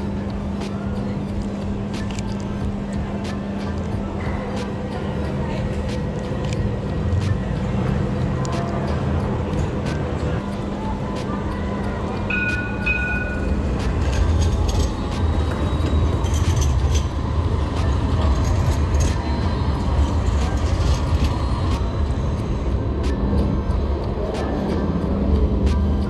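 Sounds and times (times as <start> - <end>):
tram rumbling past: 1.2 - 26.0
two-part high tone: 12.3 - 13.5.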